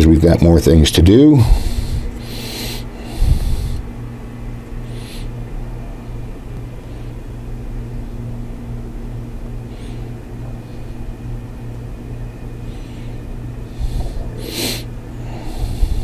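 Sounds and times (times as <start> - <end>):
steady low hum: 0.0 - 16.0
faint breaths: 1.3 - 4.0, 4.6 - 7.3, 9.5 - 11.6, 12.3 - 16.0.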